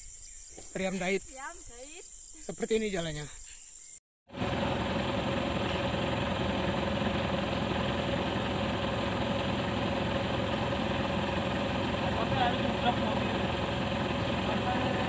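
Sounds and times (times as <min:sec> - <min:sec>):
truck engine running: 0:04.3 - 0:15.0.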